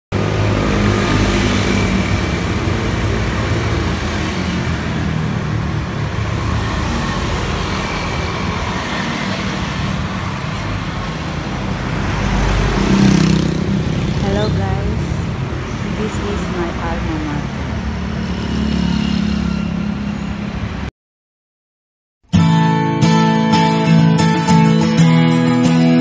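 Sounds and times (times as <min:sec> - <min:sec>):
motorcycles passing: 0:00.2 - 0:20.9.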